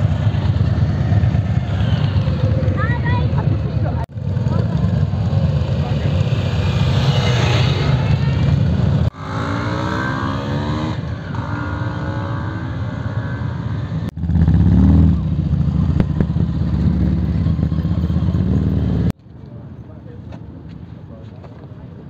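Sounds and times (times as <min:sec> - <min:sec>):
motorcycle engines revving: 0:00.0 - 0:19.2
motorcycle revving loudly pulling away: 0:04.2 - 0:19.1.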